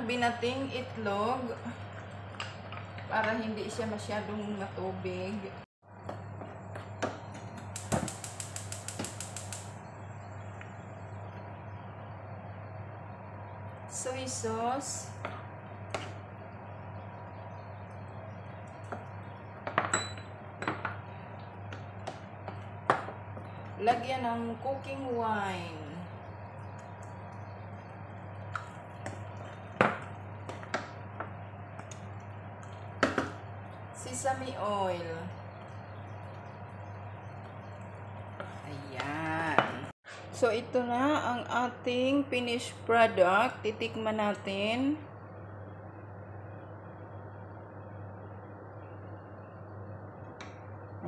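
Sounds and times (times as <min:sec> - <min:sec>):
steady low hum: 0:00.0 - 0:51.0
soft stirring and simmering: 0:00.4 - 0:04.4, 0:15.1 - 0:40.4.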